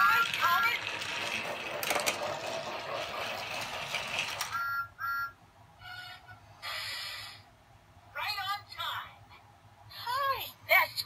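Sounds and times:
toy train motor whirring: 0.0 - 4.6.

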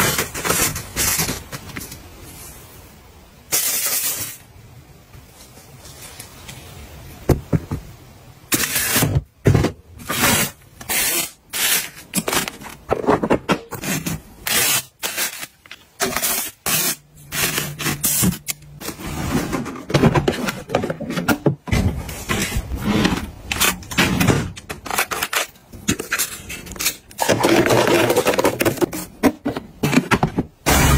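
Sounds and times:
packaging and plastic containers rustling: 0.0 - 2.5, 8.5 - 30.6.

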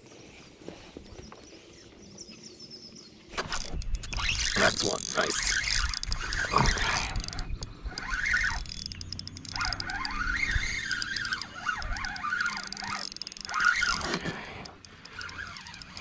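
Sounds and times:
light reel clicks: 3.3 - 16.0
fishing reel whirring: 3.4 - 16.0.

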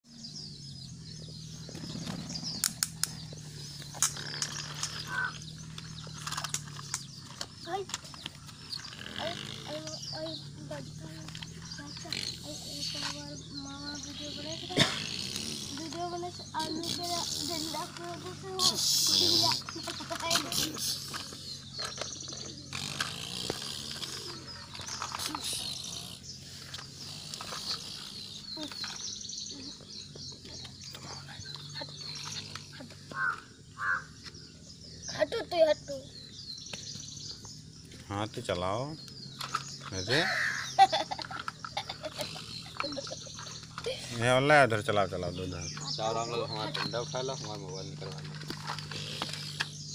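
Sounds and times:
small birds chirping: 0.0 - 49.9
steady low hum: 0.1 - 49.9
sharp clicks: 2.5 - 9.8.

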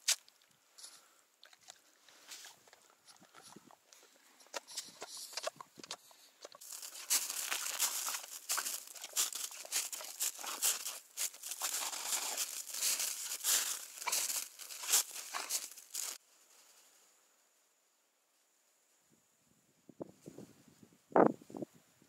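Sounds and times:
dog paws crunching snow: 6.5 - 16.2.

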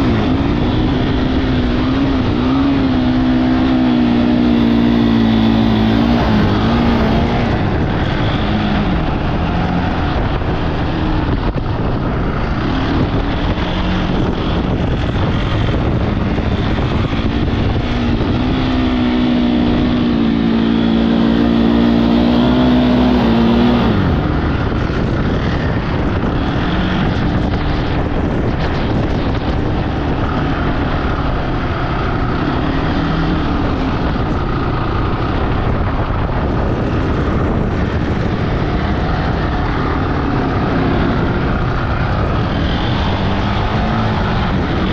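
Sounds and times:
quad bike engine running: 0.0 - 44.9
wind buffeting microphone: 0.0 - 44.9.

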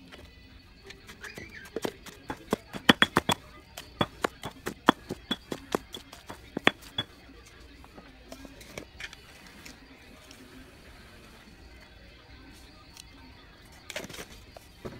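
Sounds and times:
pestle pounding in stone mortar: 1.8 - 3.4, 4.0 - 7.1.

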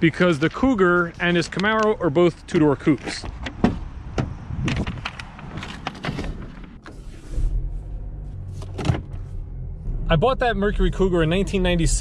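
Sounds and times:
car engine idling: 7.0 - 12.0.

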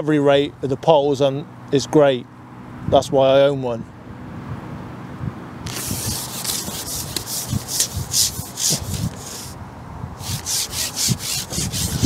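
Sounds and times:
pole sections rubbing in hands: 5.6 - 9.6, 10.2 - 12.0.

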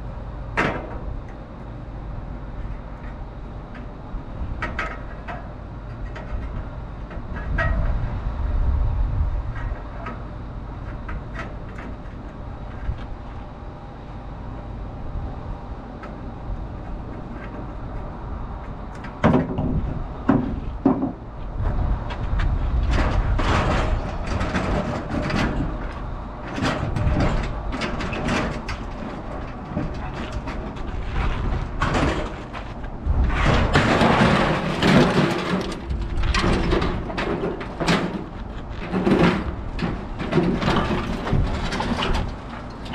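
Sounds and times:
sheet metal clanking and scraping: 22.8 - 42.9.

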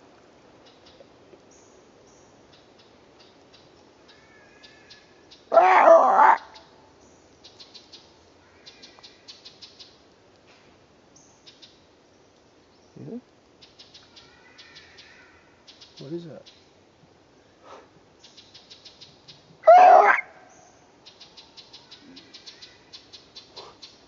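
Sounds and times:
forest birds chirping: 0.0 - 24.0
loud wavering cry: 5.5 - 6.6, 19.6 - 20.4.

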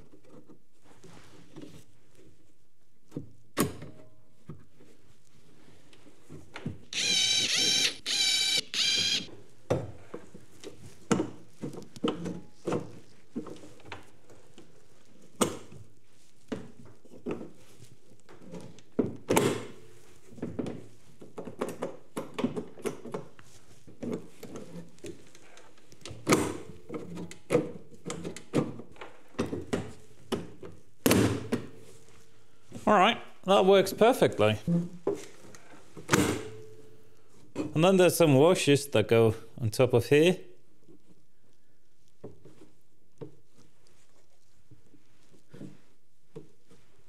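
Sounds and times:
cordless drill whining: 6.9 - 9.3.

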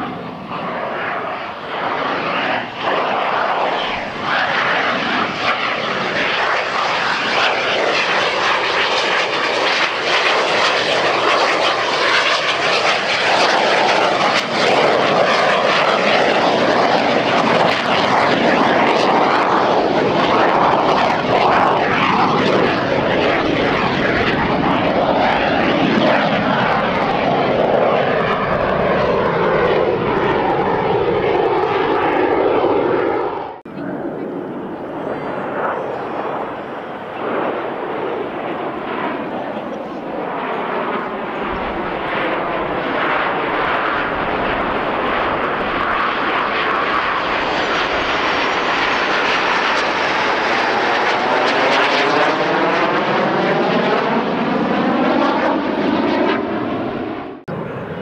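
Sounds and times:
jet engine whine: 0.0 - 58.0.

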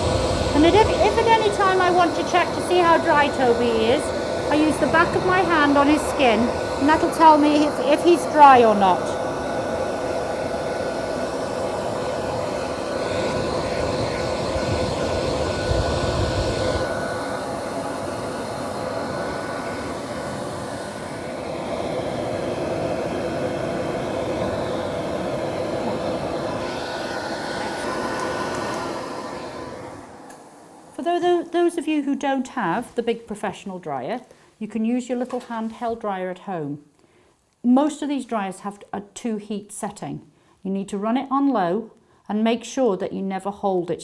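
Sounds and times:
dog dryer blowing air: 0.0 - 31.7.

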